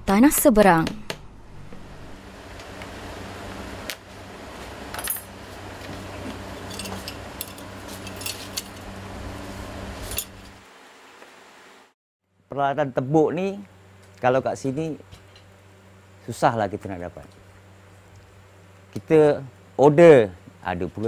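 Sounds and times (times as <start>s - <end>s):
low hum: 0.7s - 10.6s.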